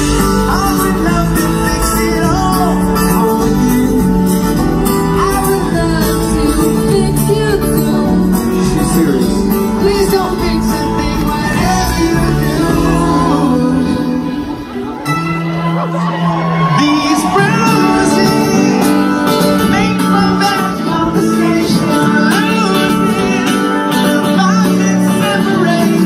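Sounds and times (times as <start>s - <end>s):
electric guitar: 0.0s - 26.0s
person singing: 0.0s - 26.0s
strummed acoustic guitar: 0.0s - 26.0s.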